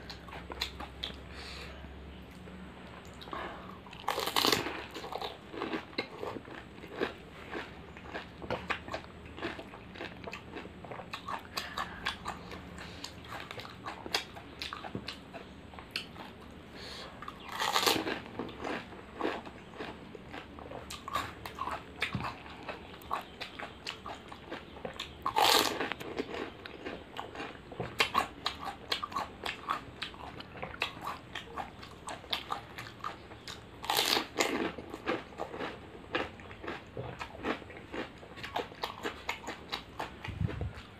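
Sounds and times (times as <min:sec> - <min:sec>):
chewing crunchy fried shells: 0:00.0 - 0:01.4, 0:02.3 - 0:40.9
loud crunchy bites: 0:04.0 - 0:12.5, 0:17.4 - 0:21.8, 0:25.2 - 0:30.3, 0:33.5 - 0:40.1.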